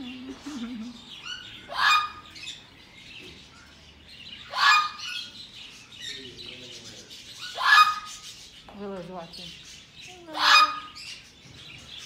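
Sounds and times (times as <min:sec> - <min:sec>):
parrot squawking: 0:01.2 - 0:02.6, 0:04.4 - 0:05.4, 0:07.4 - 0:08.4, 0:10.2 - 0:11.2.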